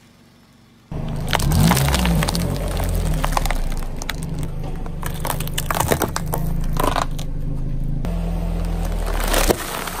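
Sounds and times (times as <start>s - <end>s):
car engine hum: 0.0s - 10.0s
chip bag crushed by tyre: 1.0s - 7.3s, 8.8s - 10.0s
plastic cracking under car tyre: 1.0s - 7.3s, 8.7s - 10.0s.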